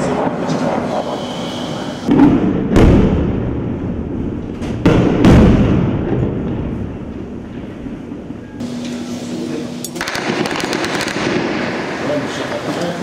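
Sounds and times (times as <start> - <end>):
shell explosions rumbling: 0.0 - 8.6, 10.0 - 13.0
heavy artillery booms: 2.1 - 8.3.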